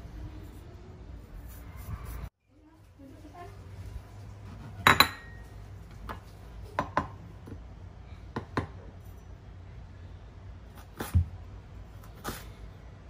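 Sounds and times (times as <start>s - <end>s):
dishes and utensils clinking: 4.6s - 7.1s.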